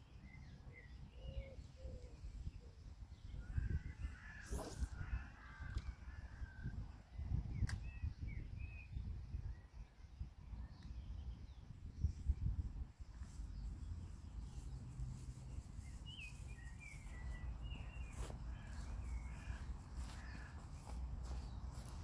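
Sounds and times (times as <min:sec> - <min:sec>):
bird calling: 0:03.5 - 0:06.2
sharp clicks: 0:07.6 - 0:07.8.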